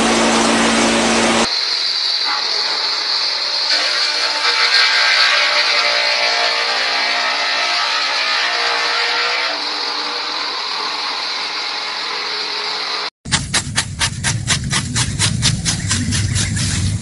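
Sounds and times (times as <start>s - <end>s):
sawmill machine whine: 0.0s - 13.1s
saw cutting through log: 3.6s - 17.0s.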